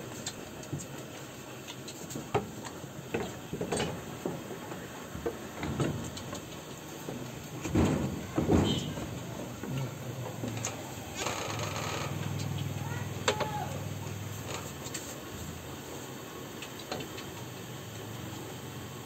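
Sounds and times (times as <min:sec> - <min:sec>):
goat kids scuffling on plank floor: 0:00.0 - 0:16.1.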